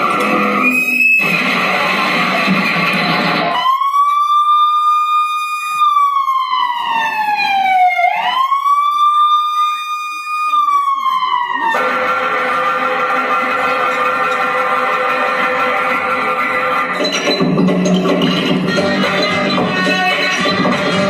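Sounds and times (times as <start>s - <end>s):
siren wailing: 0.0s - 17.0s
backing music: 11.8s - 21.0s.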